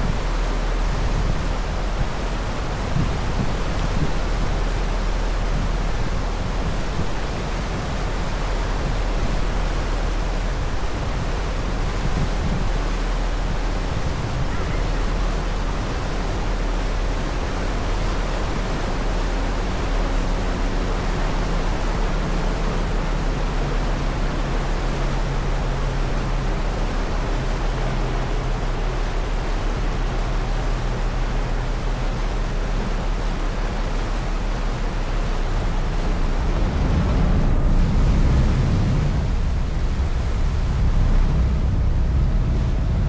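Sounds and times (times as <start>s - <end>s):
churning wake water: 0.0s - 43.0s
low engine hum: 0.0s - 43.0s
deep rumble: 27.3s - 43.0s
wind rushing: 35.0s - 43.0s.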